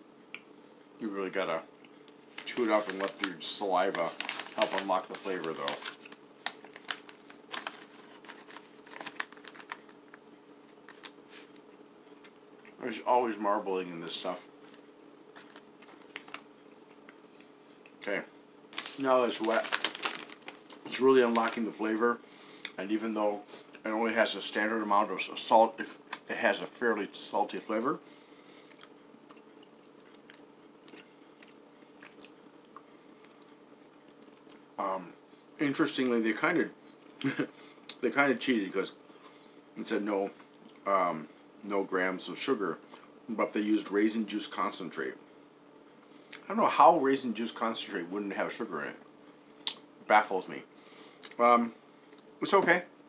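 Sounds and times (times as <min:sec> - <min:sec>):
faint hum: 0:00.0 - 0:53.0
plastic pouch crinkling: 0:02.3 - 0:11.6, 0:14.6 - 0:16.5, 0:18.7 - 0:21.8.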